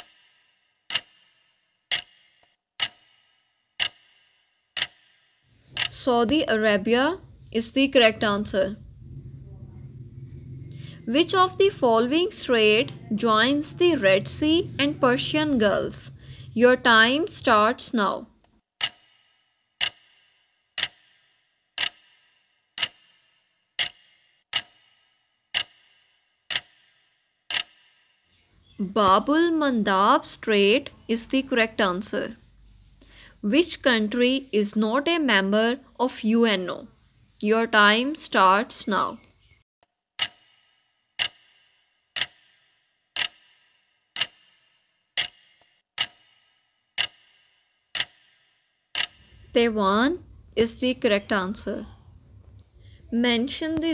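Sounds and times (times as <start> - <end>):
clock-like ticks: 0.0 - 8.7, 10.0 - 18.1, 18.8 - 28.2, 40.2 - 51.9.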